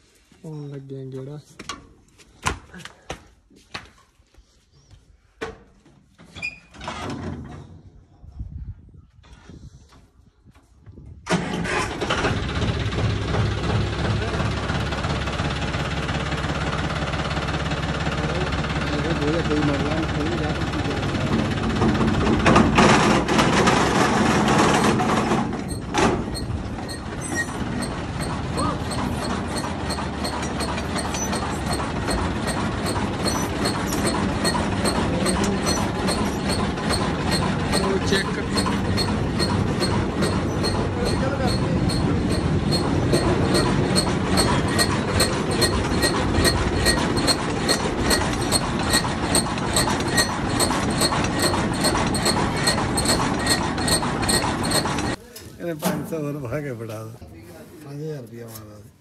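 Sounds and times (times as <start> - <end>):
reaper mechanical rumble: 11.3 - 55.2
tractor engine idling: 11.3 - 57.8.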